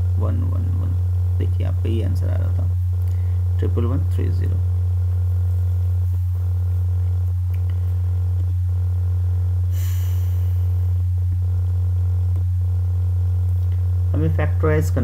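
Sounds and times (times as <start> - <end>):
low electrical hum: 0.0 - 15.0
soft hiss: 9.7 - 11.1.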